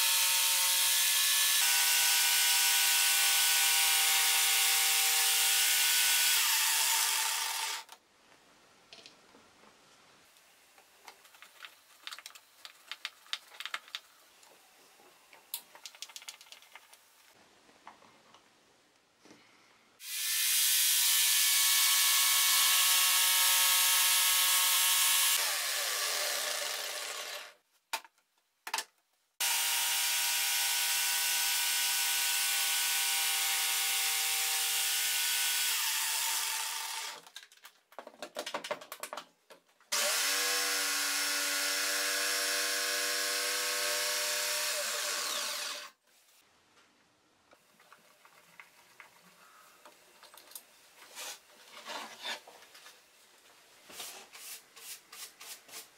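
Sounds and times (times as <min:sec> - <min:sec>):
jigsaw cutting wood: 0:00.0 - 0:08.0, 0:20.0 - 0:27.6, 0:29.4 - 0:37.2, 0:39.9 - 0:46.0.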